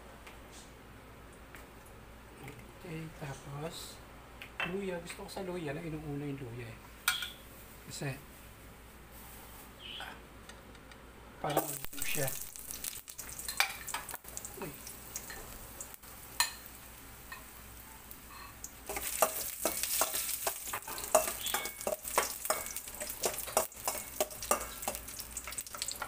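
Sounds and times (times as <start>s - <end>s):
ginger sizzling in hot oil: 11.6s - 26.0s
utensil scraping pan: 18.3s - 26.0s.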